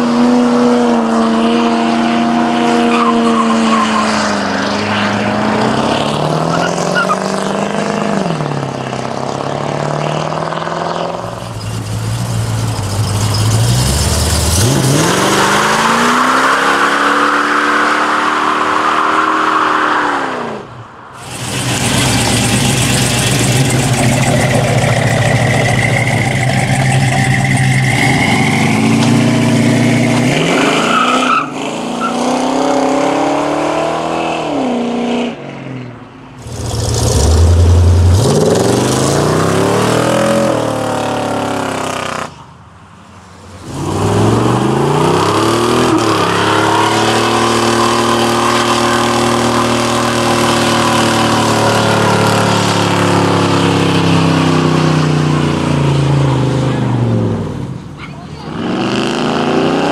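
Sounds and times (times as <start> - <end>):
car engines revving hard: 0.0 - 42.4, 43.3 - 59.9
spinning tyres squealing: 2.6 - 8.2, 11.0 - 20.4, 21.2 - 32.6, 43.5 - 55.5.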